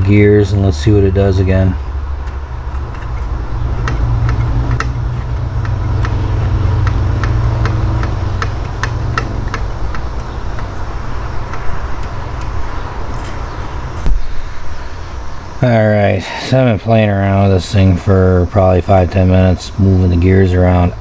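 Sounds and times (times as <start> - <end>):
steady low hum: 0.0 - 21.0
small gears clicking: 2.2 - 12.6.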